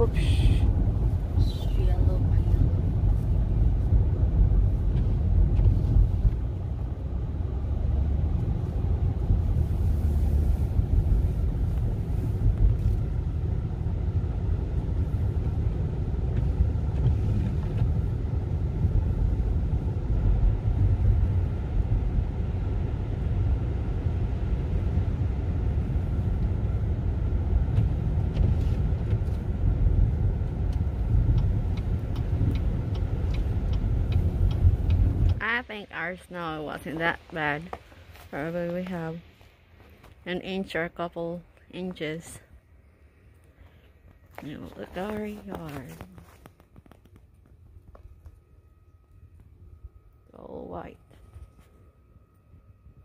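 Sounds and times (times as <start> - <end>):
car engine and tyre noise: 0.0 - 53.0.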